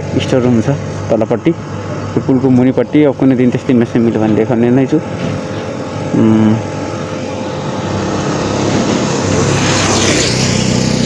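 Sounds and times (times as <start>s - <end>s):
motorcycle passing: 5.1s - 11.0s.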